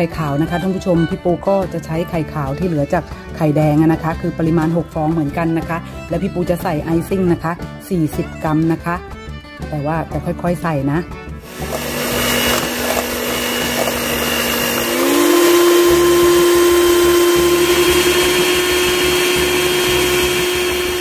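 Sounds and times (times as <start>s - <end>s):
electric hand mixer whining: 11.4s - 21.0s.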